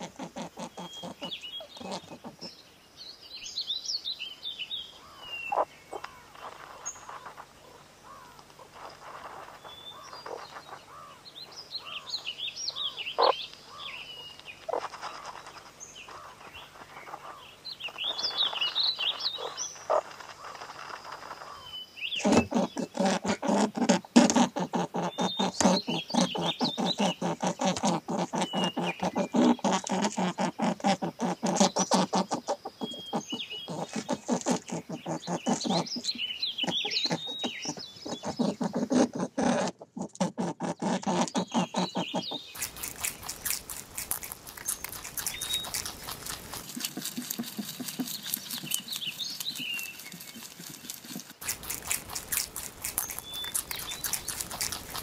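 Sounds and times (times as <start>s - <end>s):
high chirping calls: 4.6s - 8.9s, 9.6s - 23.0s, 24.7s - 29.6s, 31.6s - 38.9s, 41.4s - 46.6s, 51.5s - 55.0s
squirrel rummaging in dry litter: 5.9s - 11.2s, 14.6s - 39.6s, 42.2s - 55.0s.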